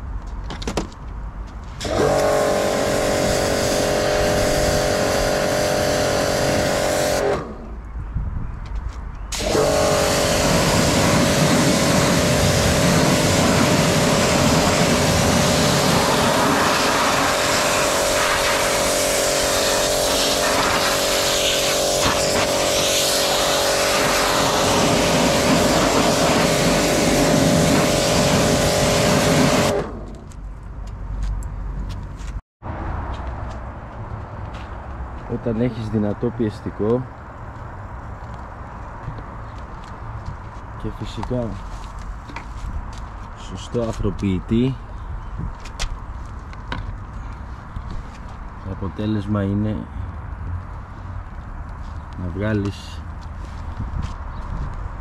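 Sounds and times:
hissing water spray: 0:01.8 - 0:07.4, 0:09.3 - 0:29.9
pressure washer running: 0:01.8 - 0:07.5, 0:09.3 - 0:30.0.

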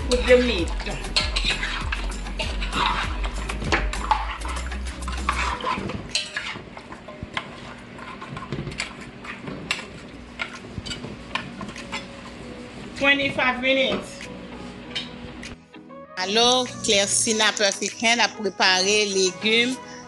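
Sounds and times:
metal spoon scraping metal pot: 0:00.0 - 0:12.2.

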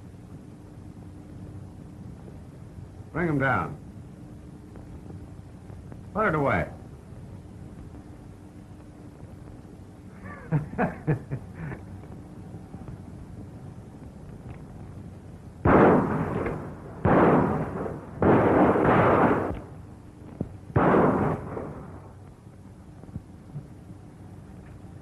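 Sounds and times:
revolver gunshots with echo: 0:15.6 - 0:19.8, 0:20.8 - 0:22.2.

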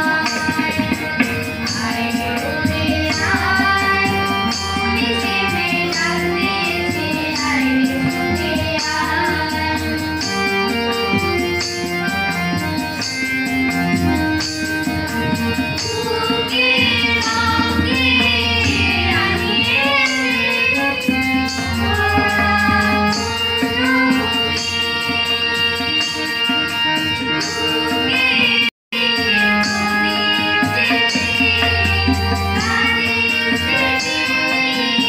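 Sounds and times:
women and girls singing: 0:00.0 - 0:11.7, 0:14.9 - 0:26.6, 0:27.3 - 0:35.0.

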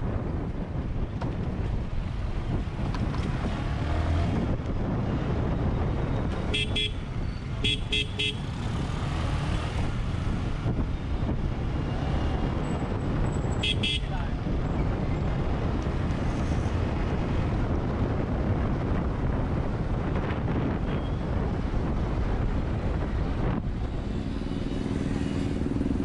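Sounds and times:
wind on camera: 0:00.0 - 0:07.6, 0:08.5 - 0:26.0
motorcycle engine rumble: 0:00.0 - 0:26.0
vehicle horn short beeps: 0:06.5 - 0:07.0, 0:07.6 - 0:08.4, 0:13.6 - 0:14.1.

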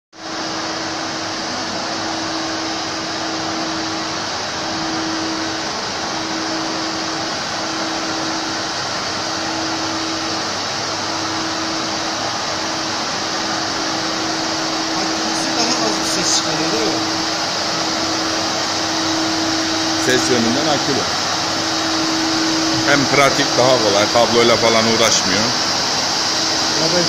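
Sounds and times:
floor scrubber whirring hiss: 0:00.2 - 0:27.0.

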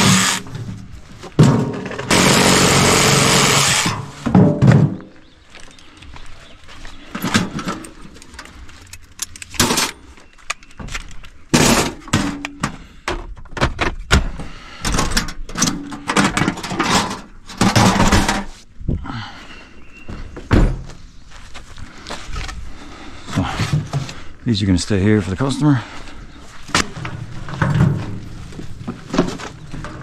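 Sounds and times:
knocks thuds and clatter: 0:00.0 - 0:02.5, 0:04.2 - 0:05.1, 0:10.8 - 0:18.5.

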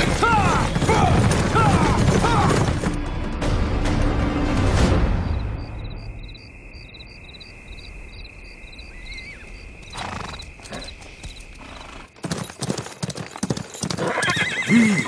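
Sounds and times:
horse hooves galloping: 0:00.0 - 0:03.6, 0:09.4 - 0:15.0.

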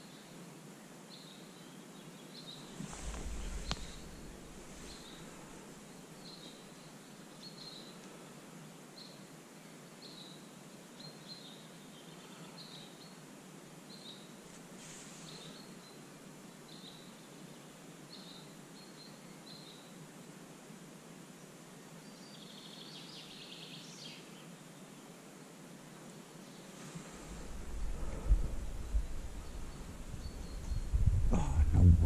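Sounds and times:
faint outdoor hiss: 0:00.0 - 0:32.0
small bird chirping: 0:02.4 - 0:05.3, 0:27.3 - 0:31.2.

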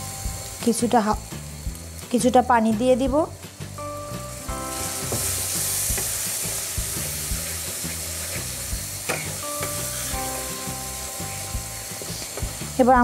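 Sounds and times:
spice paste sizzling in pan: 0:00.0 - 0:13.0
spatula scraping and knocking pan: 0:04.8 - 0:10.1.

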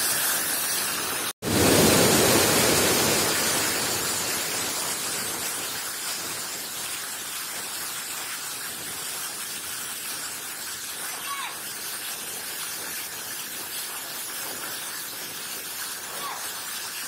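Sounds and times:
water rushing over a weir: 0:00.0 - 0:17.0.

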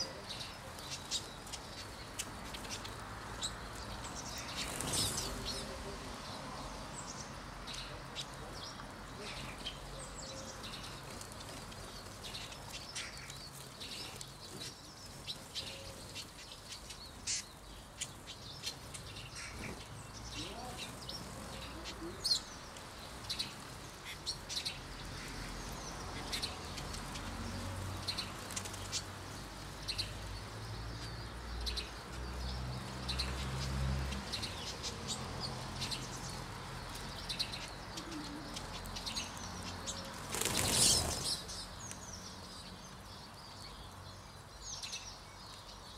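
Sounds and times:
birds chirping and twittering: 0:00.0 - 0:45.9
wings fluttering: 0:04.3 - 0:05.6, 0:10.6 - 0:29.6, 0:39.6 - 0:41.6.

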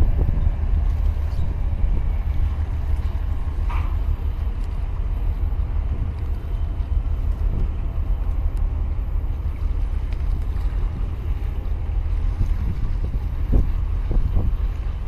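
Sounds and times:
sea water washing around blocks: 0:00.0 - 0:15.0
wind buffeting microphone: 0:00.0 - 0:15.0.

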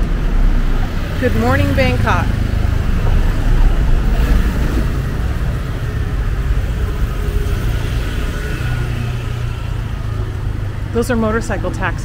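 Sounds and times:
motorbike riding: 0:00.0 - 0:12.0
pickup truck engine rumbling: 0:00.0 - 0:12.0.

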